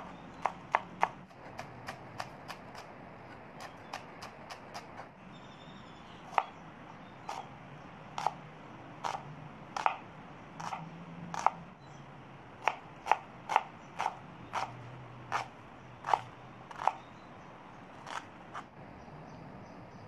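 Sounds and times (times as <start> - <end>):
knife chopping on wooden board: 0.0 - 5.1, 6.3 - 6.6, 7.2 - 7.5, 8.2 - 8.4, 9.0 - 9.2, 9.8 - 11.6, 12.6 - 17.1, 18.0 - 18.7.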